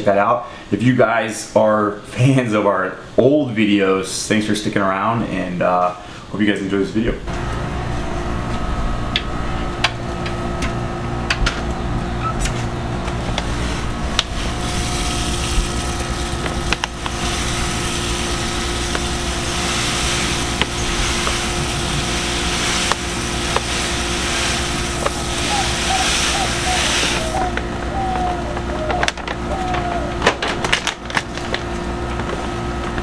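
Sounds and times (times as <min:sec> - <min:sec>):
machine hum: 0:07.2 - 0:33.0
grain pouring into water: 0:14.2 - 0:27.3.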